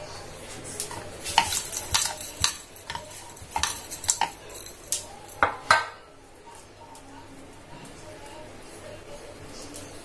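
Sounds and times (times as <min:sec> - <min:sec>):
rolling pin rolling dough: 0:00.6 - 0:05.9.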